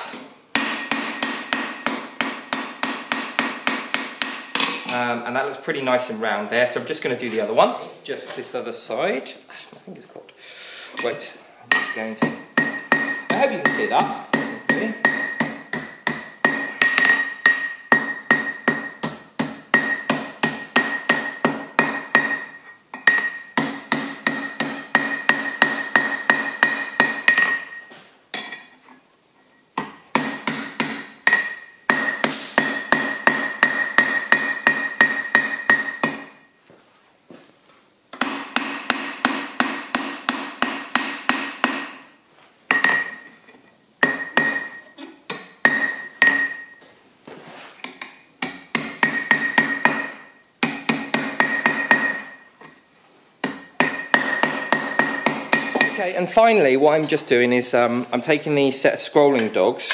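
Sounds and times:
hammer striking hot steel on anvil: 0.0s - 5.0s, 11.7s - 28.7s, 29.8s - 36.5s, 38.2s - 42.1s, 44.0s - 46.8s, 47.8s - 52.8s, 53.4s - 56.1s
anvil ringing: 45.6s - 46.8s, 53.4s - 56.1s.

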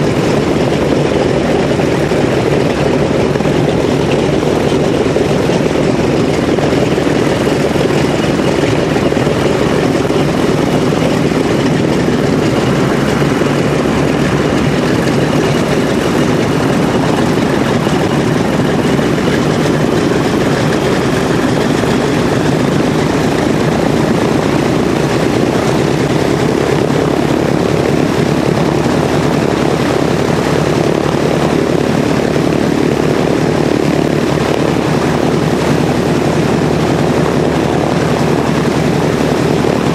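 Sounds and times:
radial aircraft engine idling: 0.0s - 39.9s.

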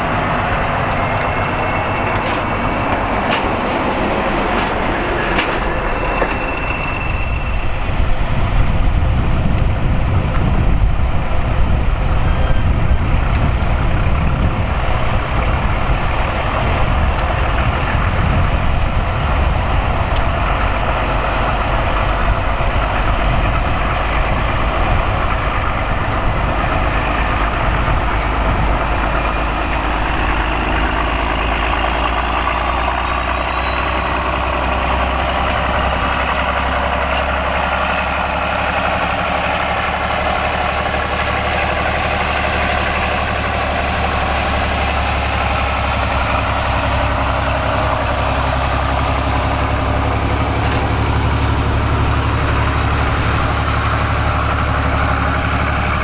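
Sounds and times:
diesel locomotive engine droning: 0.0s - 56.0s.

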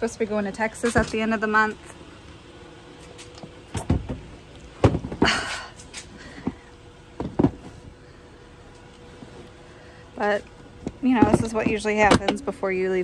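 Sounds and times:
knocks and clunks inside car: 3.8s - 5.4s, 7.2s - 7.7s.

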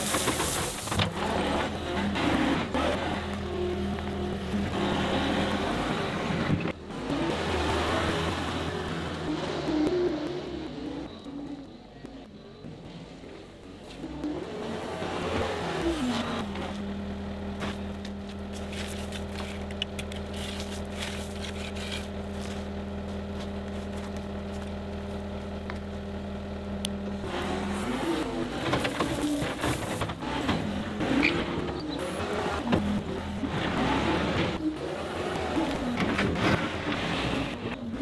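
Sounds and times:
diesel engine of loader: 0.0s - 38.0s
gravel clicks and scrapes: 17.6s - 26.0s.

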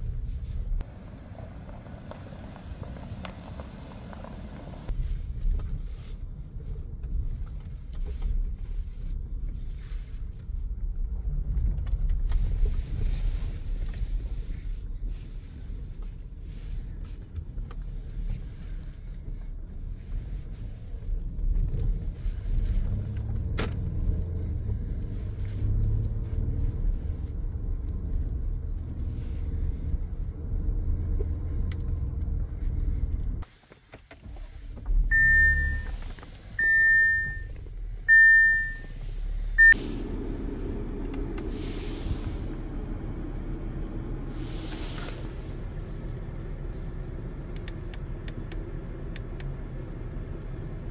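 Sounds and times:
car rumble from inside: 0.0s - 33.5s, 34.1s - 50.9s
high electronic chime beeps: 36.6s - 37.5s.

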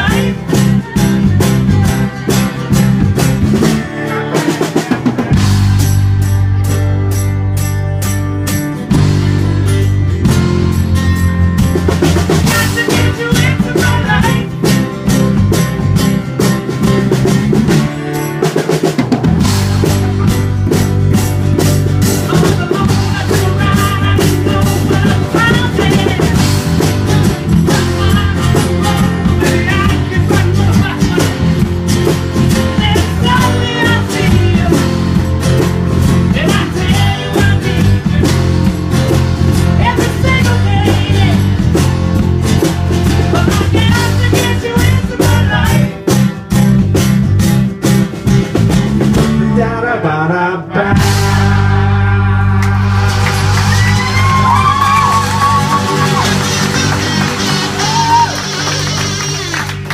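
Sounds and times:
men singing: 0.0s - 3.0s, 3.6s - 5.6s, 12.4s - 14.6s, 22.2s - 31.7s, 32.6s - 35.0s, 36.3s - 38.4s, 39.8s - 41.6s, 43.2s - 46.0s, 49.3s - 53.1s
drum kit: 0.0s - 49.9s, 50.8s - 59.9s
strummed acoustic guitars: 0.0s - 50.0s, 50.8s - 59.9s
electric bass: 0.0s - 59.9s.

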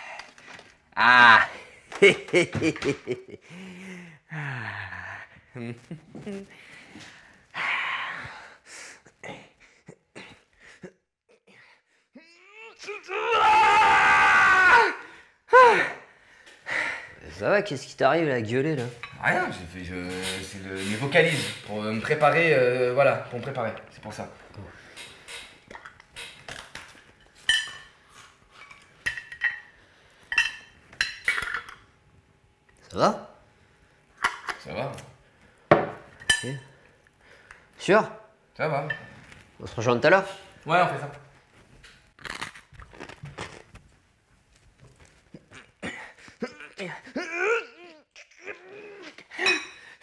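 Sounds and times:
man straining whines and groans: 0.9s - 1.8s, 9.1s - 16.1s, 45.3s - 50.0s.

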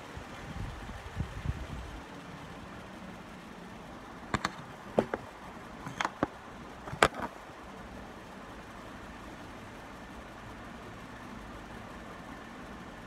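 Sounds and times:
ceiling fans whooshing: 0.0s - 13.0s
sharp knocks and clicks: 4.3s - 7.4s.

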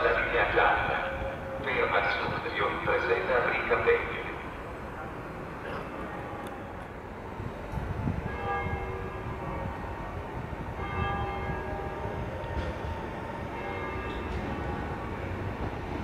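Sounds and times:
electric train rumbling: 0.0s - 16.0s
bells ringing: 10.8s - 12.4s, 13.5s - 14.5s.

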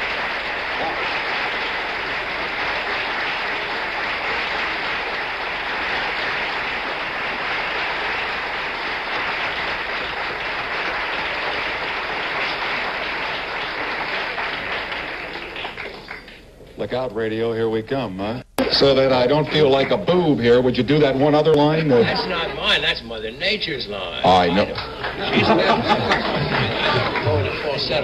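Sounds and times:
applause: 0.0s - 16.5s, 18.6s - 20.2s, 24.3s - 28.0s.

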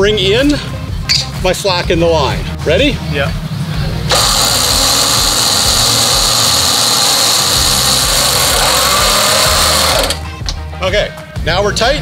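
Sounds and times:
electric winch whining: 4.1s - 10.3s.

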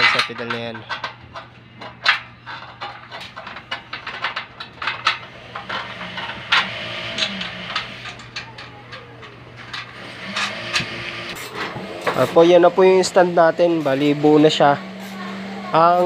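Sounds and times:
metal clicks and knocks: 0.0s - 12.2s
steady low hum: 0.0s - 15.7s.

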